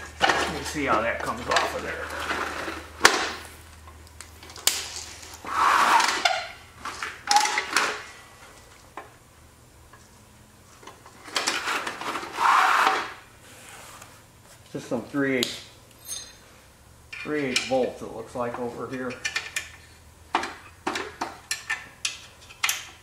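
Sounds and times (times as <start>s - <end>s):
metal scraping on concrete: 0.2s - 3.0s, 5.4s - 6.6s.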